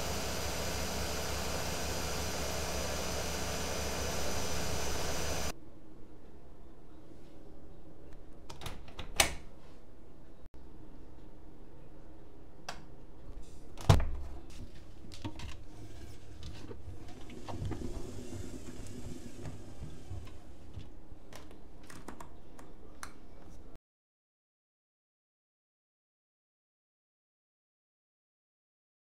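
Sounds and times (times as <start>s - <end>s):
washing machine hum: 0.0s - 5.5s, 15.7s - 21.2s.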